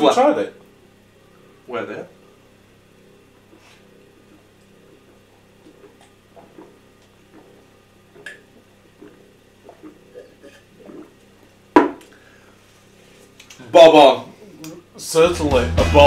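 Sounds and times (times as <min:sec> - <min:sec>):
low steady hum: 0:00.0 - 0:16.0
people gulping beer: 0:03.5 - 0:12.3.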